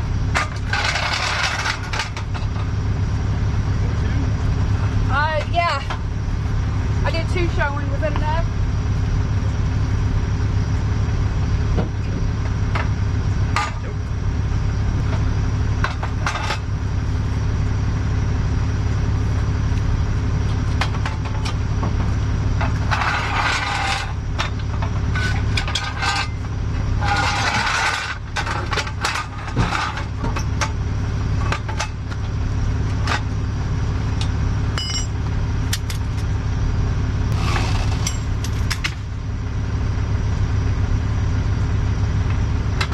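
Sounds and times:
truck engine idling: 0:00.0 - 0:42.9
metal hardware clinking and rattling: 0:34.8 - 0:36.2, 0:37.5 - 0:39.0.

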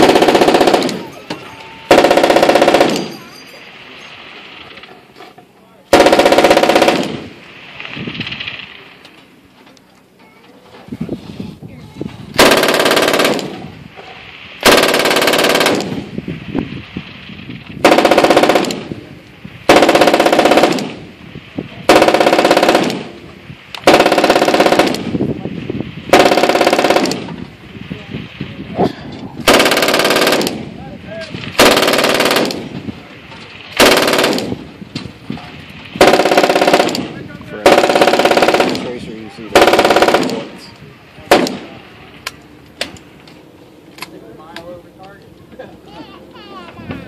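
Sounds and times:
machine gun bursts: 0:00.0 - 0:03.4, 0:05.9 - 0:07.3, 0:12.4 - 0:13.7, 0:14.6 - 0:16.0, 0:17.8 - 0:18.9, 0:19.7 - 0:21.0, 0:21.9 - 0:23.2, 0:23.8 - 0:25.2, 0:26.1 - 0:27.4, 0:29.5 - 0:30.6, 0:31.6 - 0:32.8, 0:33.8 - 0:34.6, 0:36.0 - 0:40.5.

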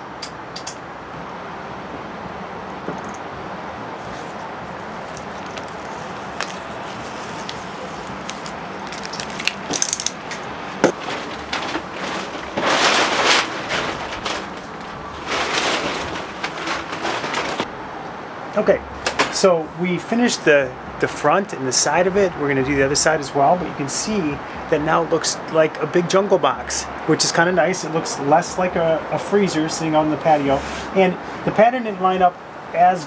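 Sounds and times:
steady background hiss: 0:00.0 - 0:33.0
loud wallpaper rustles: 0:03.9 - 0:17.7, 0:30.2 - 0:31.0
wallpaper crinkles and clicks: 0:04.0 - 0:17.7.

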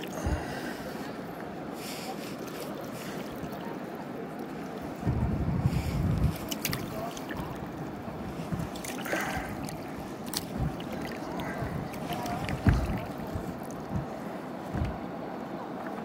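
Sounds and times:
river water lapping: 0:00.0 - 0:16.0
low rumble on microphone: 0:04.6 - 0:15.3.

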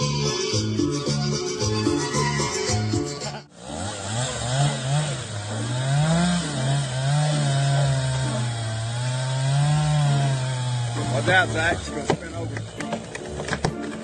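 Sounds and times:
chainsaw revving and cutting: 0:03.3 - 0:14.0.

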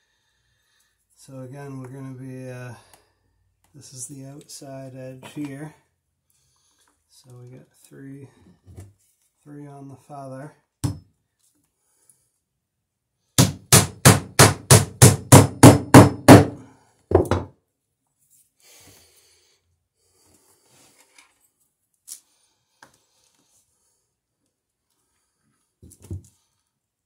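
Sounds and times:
hammer hitting nail into wood: 0:10.8 - 0:11.1, 0:13.4 - 0:17.5.

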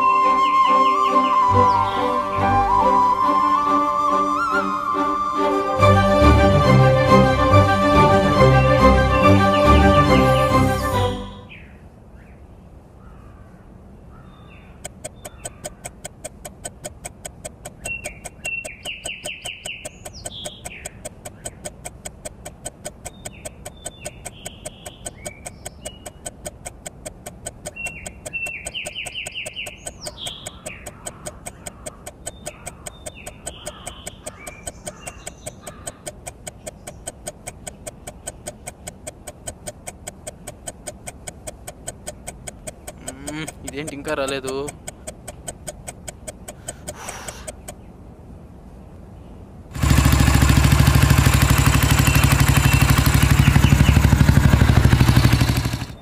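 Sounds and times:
bird chirps and calls: 0:14.1 - 0:16.0, 0:17.6 - 0:21.9, 0:22.8 - 0:26.7, 0:27.4 - 0:38.9, 0:52.0 - 0:54.2
fast clock ticking: 0:14.8 - 0:47.8, 0:49.8 - 0:56.0.

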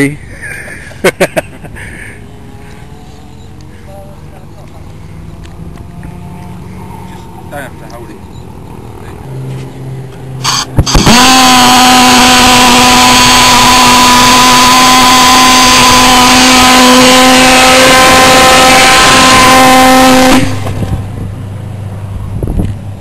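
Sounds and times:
pulsejet engine buzzing drone: 0:09.2 - 0:22.3
sharp pops: 0:10.4 - 0:11.4.

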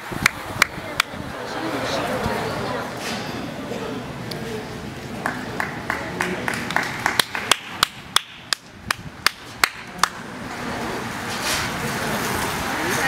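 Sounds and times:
sharp claps or knocks: 0:05.2 - 0:10.2.

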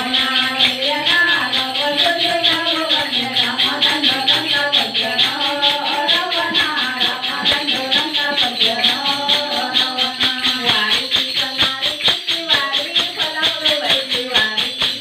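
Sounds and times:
jingling hand percussion: 0:00.0 - 0:15.0
women singing devotional song: 0:00.0 - 0:15.0.

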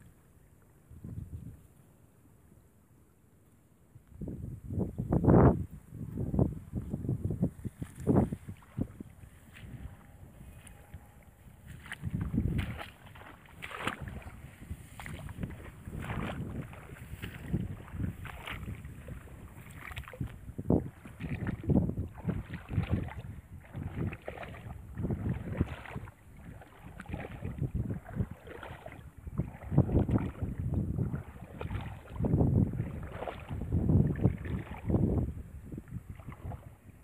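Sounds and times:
wind rumbling on microphone: 0:00.8 - 0:01.9, 0:04.0 - 0:37.0
squelching footsteps in water: 0:07.5 - 0:37.0.

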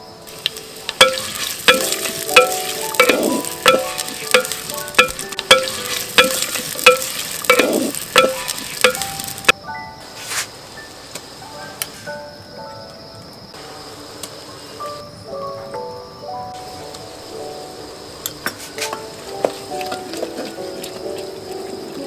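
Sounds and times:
food sizzling in a pan: 0:00.2 - 0:09.5, 0:16.6 - 0:22.0
metal spatula clanking on pan: 0:01.0 - 0:09.5.

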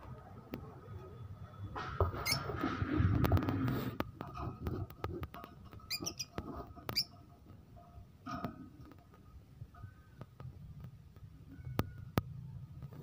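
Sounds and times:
birds chirping: 0:05.7 - 0:07.2.

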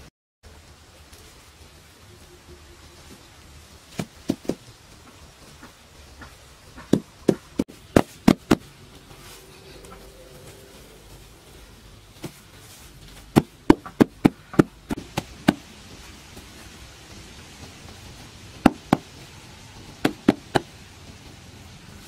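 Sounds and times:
hands slapping turf: 0:03.9 - 0:04.7, 0:05.5 - 0:10.0, 0:12.1 - 0:21.5.

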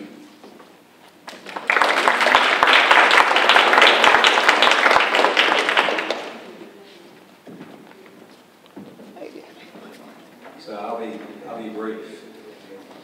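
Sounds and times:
audience applauding: 0:01.3 - 0:06.6.

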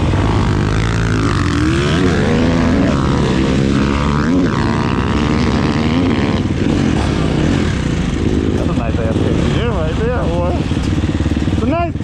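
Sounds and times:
dirt bike engine revving: 0:00.0 - 0:12.0.

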